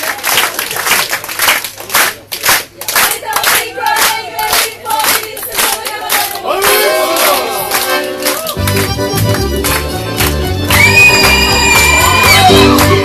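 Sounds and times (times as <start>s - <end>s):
rhythmic clapping: 0.0s - 13.0s
folk dance music: 2.8s - 13.0s
dancers shouting whoops: 10.7s - 13.0s.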